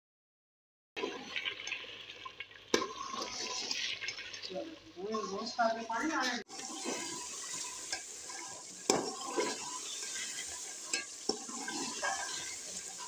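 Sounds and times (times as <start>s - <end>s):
food sizzling in pot: 1.0s - 13.0s
metal ladle scraping pot: 6.2s - 13.0s.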